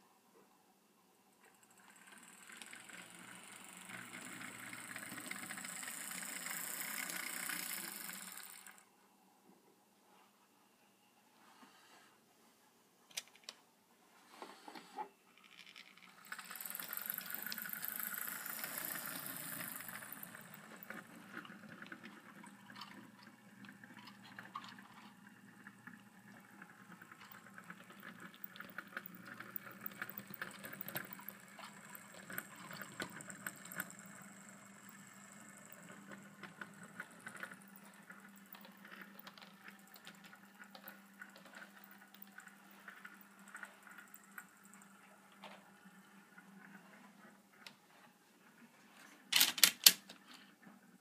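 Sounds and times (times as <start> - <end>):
model train motor hum: 1.5 - 8.9, 15.5 - 46.9.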